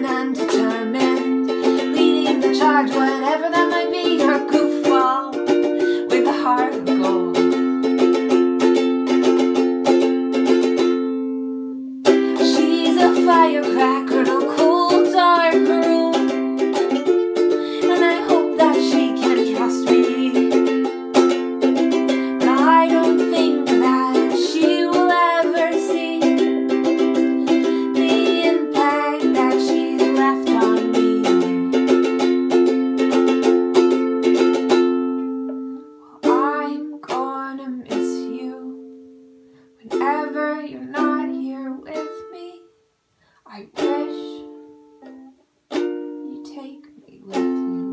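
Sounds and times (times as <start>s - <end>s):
woman singing: 0.0s - 8.1s, 12.1s - 32.2s, 36.1s - 39.0s, 39.8s - 42.7s, 43.4s - 45.4s, 46.0s - 47.9s
ukulele strumming: 0.0s - 42.8s, 43.7s - 47.9s.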